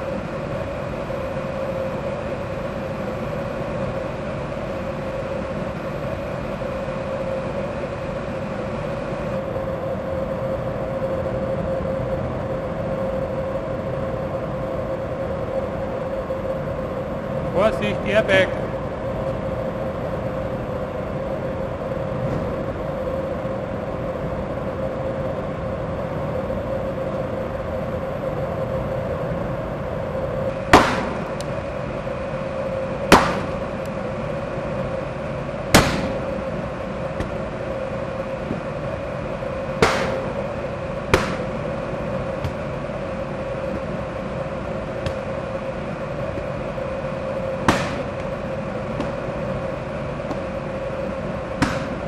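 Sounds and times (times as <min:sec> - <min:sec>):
steady hum: 0:00.0 - 0:52.0
airbag bangs: 0:30.8 - 0:31.2, 0:33.1 - 0:33.6, 0:39.8 - 0:40.4, 0:41.1 - 0:41.6, 0:47.7 - 0:48.2, 0:51.6 - 0:52.0.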